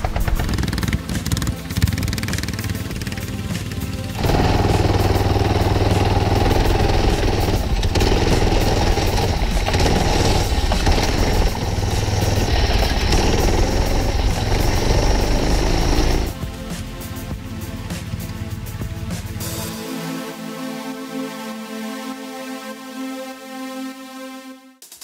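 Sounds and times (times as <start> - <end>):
minibike engine running hard: 0.0 - 16.4, 17.4 - 19.7.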